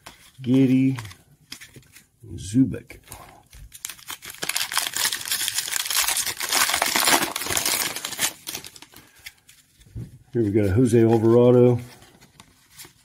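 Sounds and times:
wrapper tearing and crinkling: 0:03.7 - 0:09.4.

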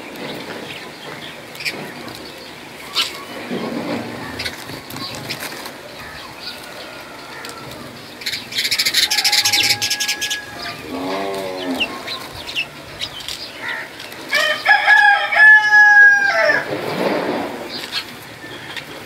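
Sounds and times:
small birds chattering: 0:00.0 - 0:15.9
rooster crowing: 0:06.5 - 0:08.0, 0:08.8 - 0:12.1, 0:14.3 - 0:16.7.

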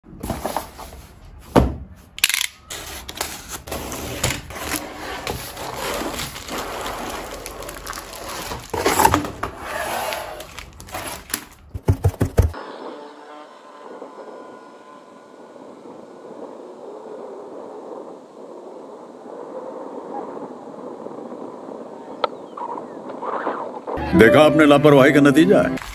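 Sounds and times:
outdoor noise: 0:00.0 - 0:24.2
plastic crinkling: 0:02.7 - 0:11.7
thin electric motor hum: 0:12.6 - 0:18.8.

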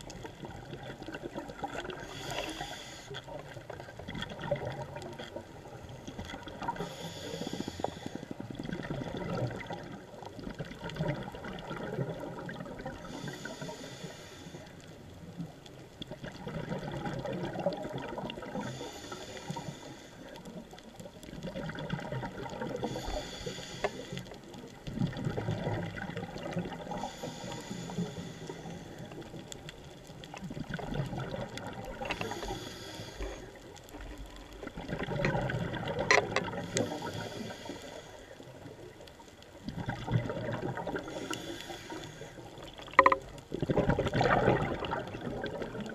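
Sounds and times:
bubbling exhaust underwater: 0:00.0 - 0:45.9
regulator hissing inhalations: 0:02.0 - 0:03.3, 0:06.8 - 0:08.3, 0:13.1 - 0:14.8, 0:18.6 - 0:20.3, 0:22.8 - 0:24.3, 0:27.0 - 0:29.0, 0:32.1 - 0:33.6, 0:36.6 - 0:38.4, 0:41.0 - 0:42.5.

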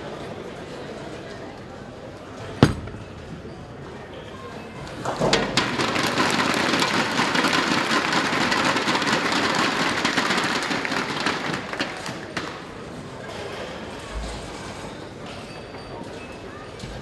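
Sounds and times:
bowling ball crashing into pins: 0:02.6 - 0:03.4, 0:05.0 - 0:07.6
crowd applauding: 0:05.5 - 0:12.8.

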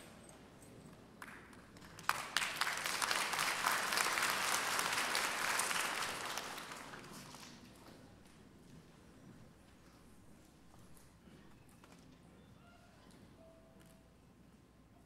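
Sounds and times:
audience applause: 0:01.8 - 0:07.4.

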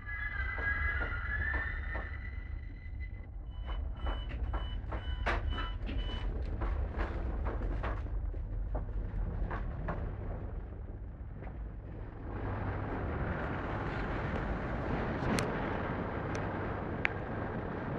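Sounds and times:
train interior rumble: 0:00.0 - 0:17.9.

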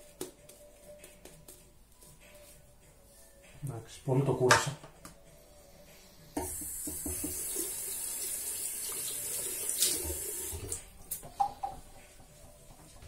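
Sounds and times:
tap water running into sink: 0:06.4 - 0:10.8.

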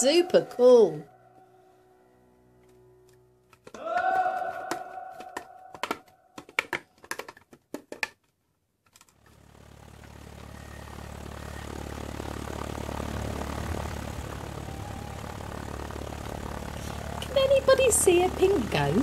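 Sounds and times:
engine rumble with hiss: 0:09.8 - 0:18.9.

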